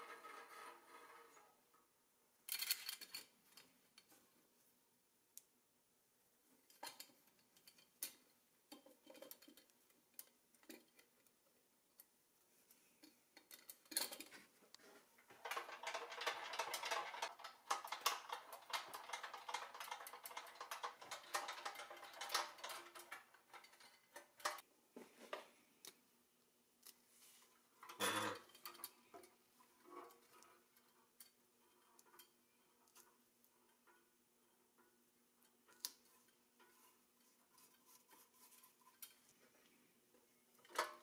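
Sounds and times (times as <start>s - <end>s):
toy parts clicking and rattling: 15.4s - 24.6s.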